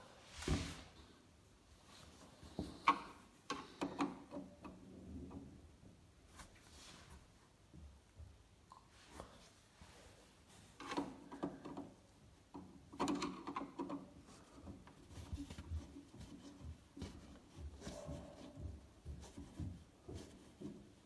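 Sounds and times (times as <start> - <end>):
hand clicking and scraping plastic: 2.5 - 5.5, 10.8 - 21.0.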